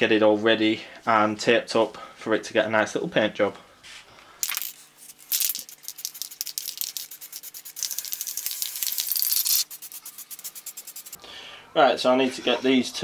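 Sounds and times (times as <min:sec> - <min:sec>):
spray can mixing ball rattling: 0:04.4 - 0:11.2
spray paint hissing: 0:05.1 - 0:11.2.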